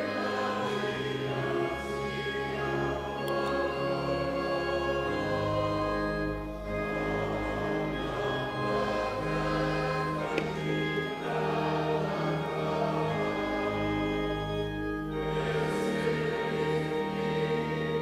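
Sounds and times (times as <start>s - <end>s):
choir singing a hymn: 0.0s - 18.0s
instrumental accompaniment: 0.0s - 18.0s.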